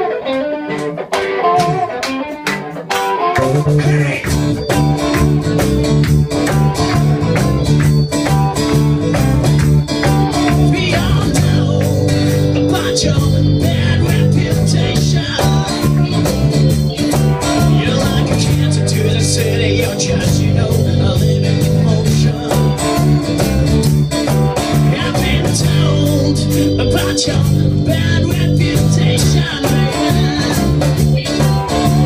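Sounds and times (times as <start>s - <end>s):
electric guitar: 0.0s - 32.0s
strummed acoustic guitar: 0.0s - 32.0s
drums: 0.8s - 32.0s
person singing: 3.2s - 5.4s, 10.0s - 23.4s, 24.7s - 32.0s.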